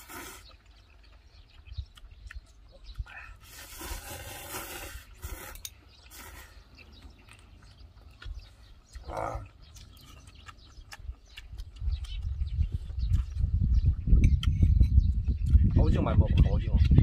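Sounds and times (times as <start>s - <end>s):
noodles being slurped: 0.0s - 1.5s, 2.9s - 7.5s
soft eating sounds: 0.0s - 17.0s.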